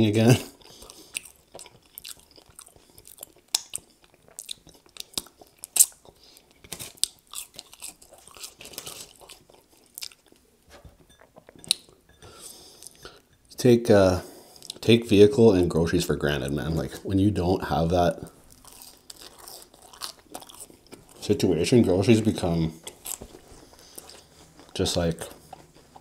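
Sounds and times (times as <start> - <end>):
chewing fries: 0.4 - 10.7, 14.4 - 14.8, 18.3 - 26.0.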